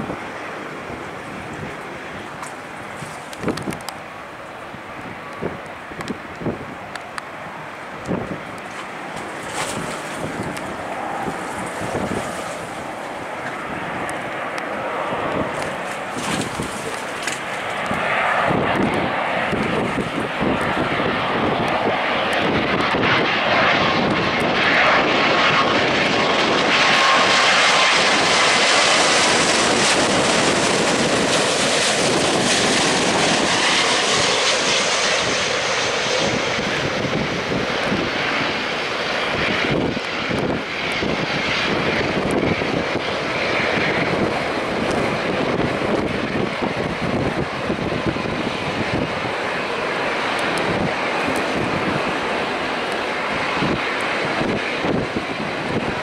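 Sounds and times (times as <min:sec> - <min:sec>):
faint jet whine: 0:00.0 - 0:56.0
jet engine roar: 0:00.0 - 0:56.0.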